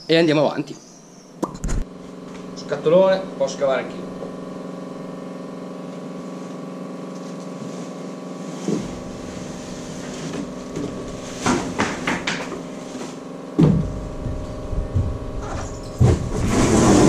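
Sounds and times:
steady hum: 0.0s - 17.0s
thump: 13.6s - 14.0s
cardboard box scraping and knocking: 16.0s - 17.0s.

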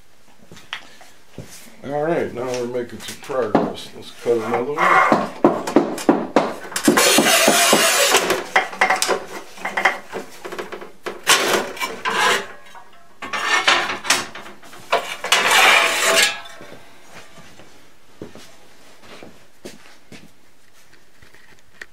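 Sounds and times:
tile cutter scraping tile: 6.8s - 8.4s, 11.3s - 12.6s, 13.2s - 14.3s, 14.9s - 16.4s.

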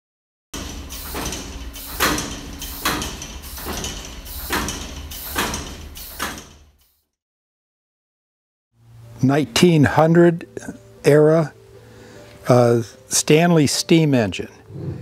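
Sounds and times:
steam engine exhaust chuffing: 0.6s - 6.9s.

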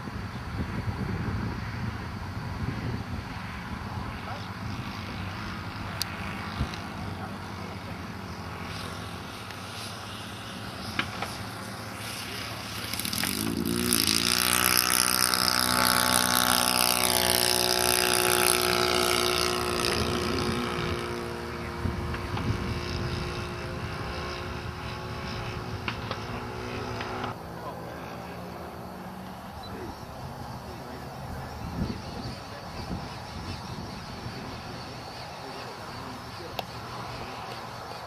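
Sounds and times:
model aircraft engine in flight: 0.0s - 38.0s.

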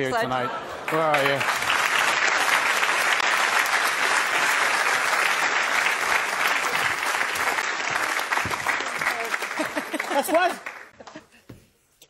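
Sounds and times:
audience applauding: 0.8s - 11.0s.

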